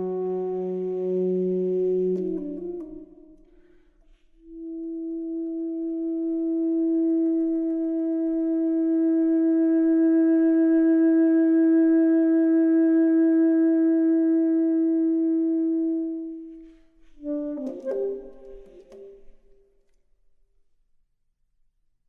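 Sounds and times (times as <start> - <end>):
long held wind or brass note: 0.0 - 2.9
short notes and clicks: 17.2 - 20.0.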